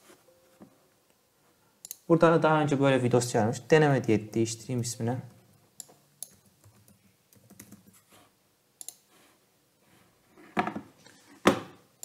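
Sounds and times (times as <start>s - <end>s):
computer keyboard typing: 6.2s - 8.0s.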